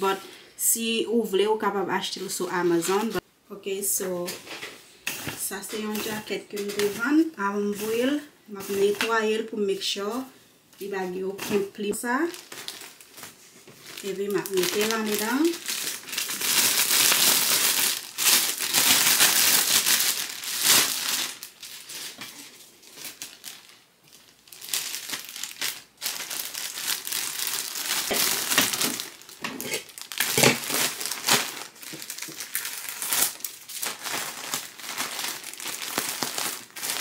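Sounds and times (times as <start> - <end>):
plastic bag crinkling: 10.7 - 37.0.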